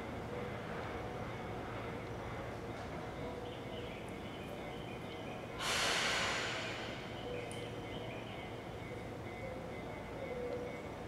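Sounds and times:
compressed air hissing: 5.6 - 7.1.

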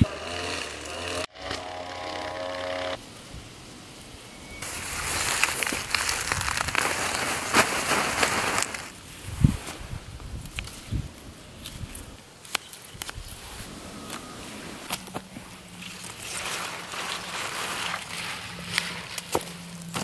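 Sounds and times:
leaves rustling and snapping: 4.6 - 9.0, 9.6 - 20.0.

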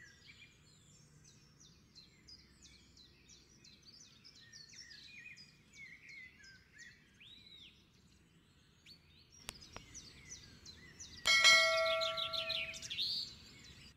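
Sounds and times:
small birds chirping: 0.0 - 13.9
bright bell chime: 11.3 - 12.9.

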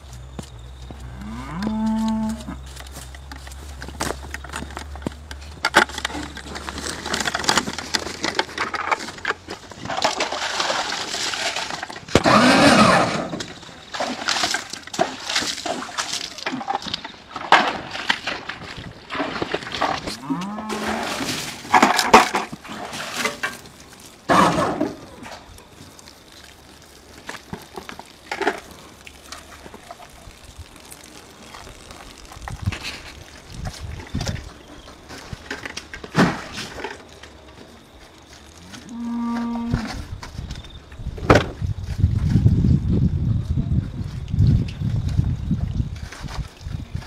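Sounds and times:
cattle mooing: 1.1 - 2.6, 20.2 - 21.1.

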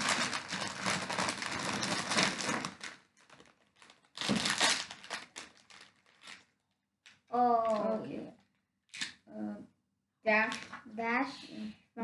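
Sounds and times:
wrapper crinkling: 0.0 - 9.1.

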